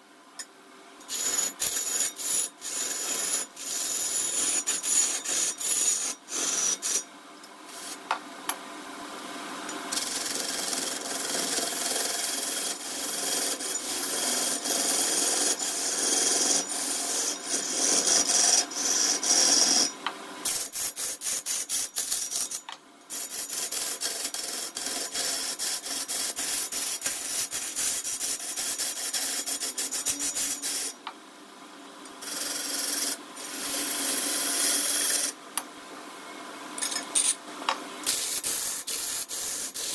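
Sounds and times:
wood rasping on lathe: 10.0 - 19.9.

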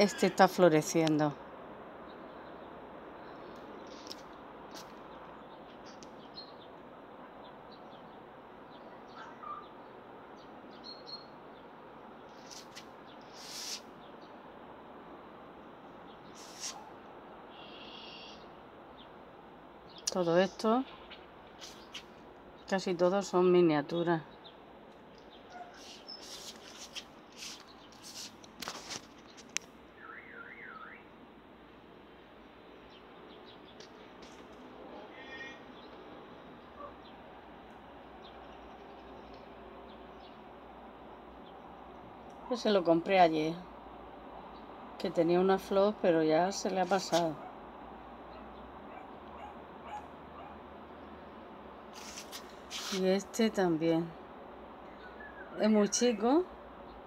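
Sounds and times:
background hiss: 10.3 - 22.8, 24.3 - 30.0, 51.0 - 53.4
faint bird chirps: 17.5 - 18.6, 54.9 - 56.0
short rustling: 25.5 - 29.6, 51.9 - 53.0.

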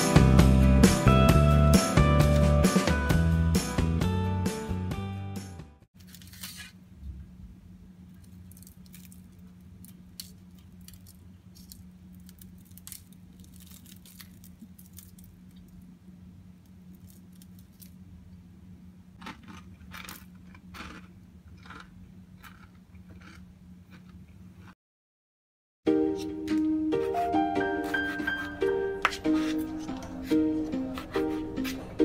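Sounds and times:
parchment paper rustling: 6.0 - 6.8, 27.8 - 31.9.

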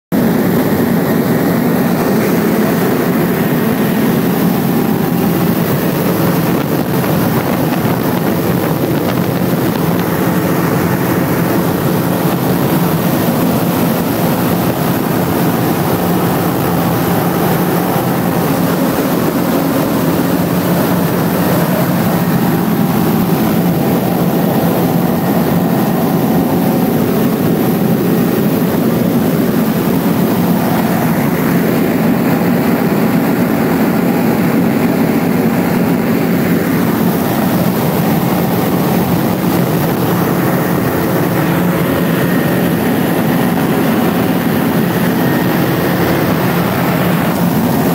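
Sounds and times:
aircraft engine and propeller drone: 0.1 - 47.9.

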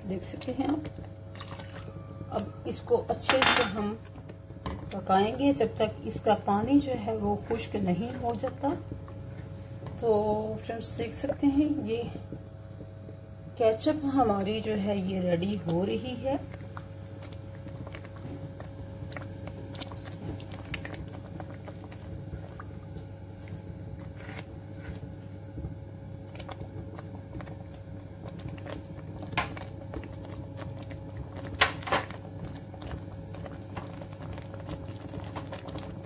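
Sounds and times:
steady low hum: 0.0 - 36.0
sauce bubbles popping: 0.5 - 2.5, 15.4 - 36.0.

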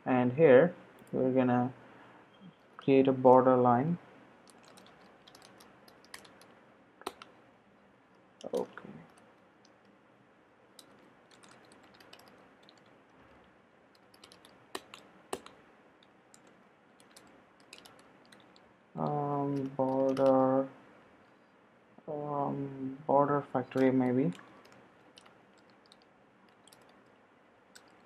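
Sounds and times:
keyboard typing: 4.4 - 7.4, 8.4 - 10.0, 10.8 - 20.5, 23.7 - 28.0.

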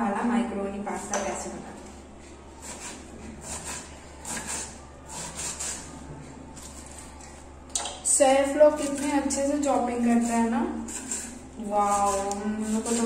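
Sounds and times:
low steady hum: 0.0 - 13.0
knife cutting cabbage on board: 2.6 - 5.9, 10.2 - 13.0.

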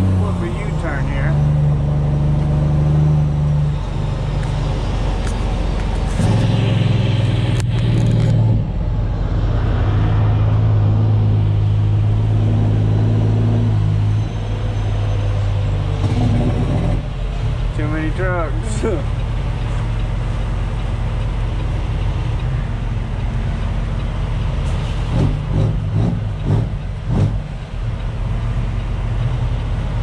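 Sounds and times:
truck diesel engine running: 0.0 - 30.0.

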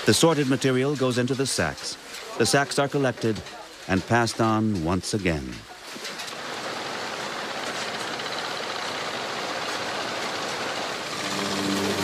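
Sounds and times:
machinery running: 7.6 - 12.0
background music with held notes: 11.2 - 12.0.

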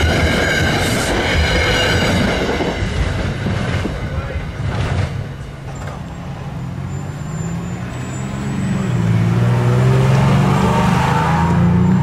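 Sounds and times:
heavy engine accelerating: 5.7 - 12.0.

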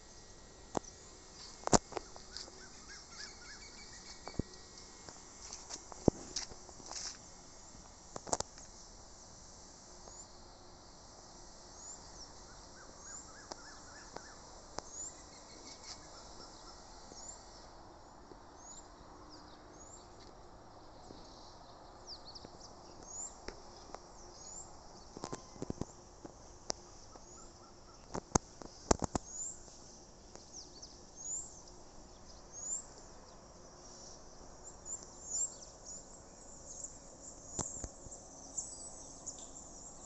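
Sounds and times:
high insect drone: 0.0 - 40.0
bird chirping: 2.0 - 4.7.

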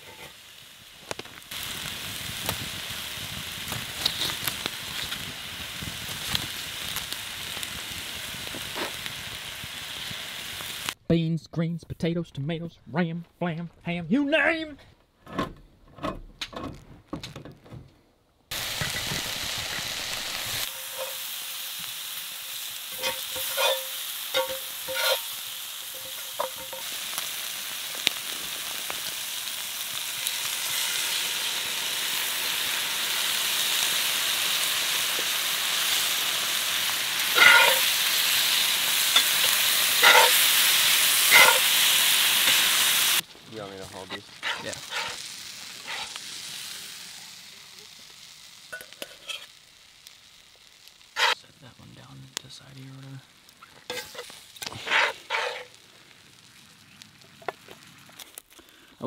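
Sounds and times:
meat sizzling in a skillet: 0.0 - 11.0, 18.5 - 51.4, 52.0 - 58.8
metal spatula scraping pan: 20.7 - 21.3, 22.9 - 26.9, 37.3 - 37.9, 39.2 - 40.4, 41.3 - 41.7, 44.4 - 45.2, 45.8 - 46.2, 49.0 - 49.5, 51.2 - 51.4, 53.9 - 55.8.

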